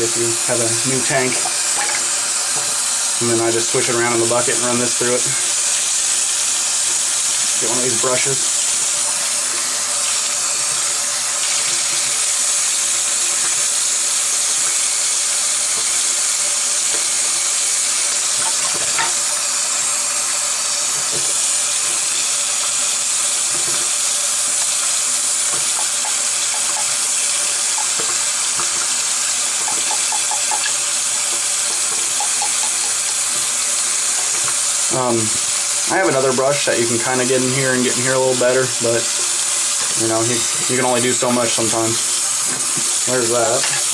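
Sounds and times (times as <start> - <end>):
tap water splashing on plastic: 15.6 - 43.9.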